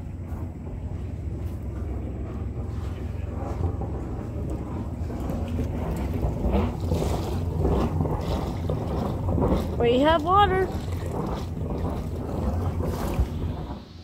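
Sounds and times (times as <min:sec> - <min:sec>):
boat engine humming: 0:00.0 - 0:14.0
water splashing onto the sea: 0:03.6 - 0:14.0.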